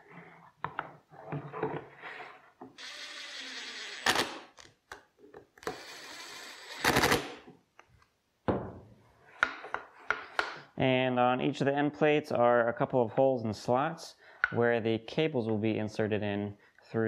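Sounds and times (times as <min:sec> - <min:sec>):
impact driver driving screws: 0:02.8 - 0:04.6, 0:05.6 - 0:07.4.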